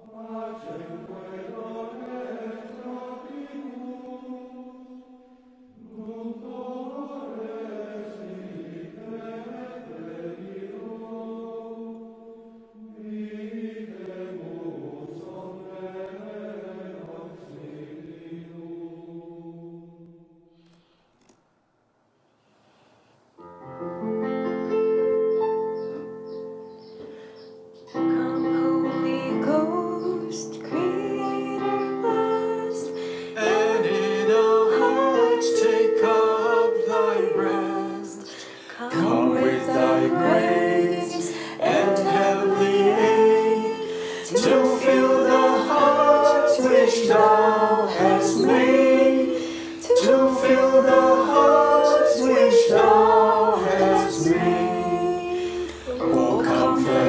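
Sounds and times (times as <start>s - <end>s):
choir singing a hymn: 0.0s - 20.0s, 24.2s - 57.0s
instrumental accompaniment with held chords: 23.4s - 57.0s.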